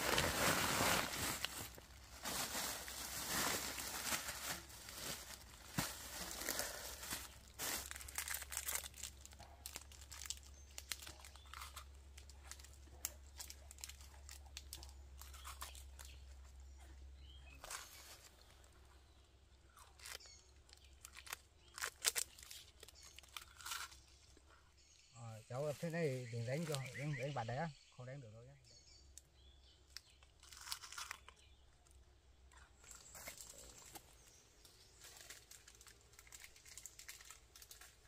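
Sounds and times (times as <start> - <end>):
plastic bag rustling: 0.0 - 11.5.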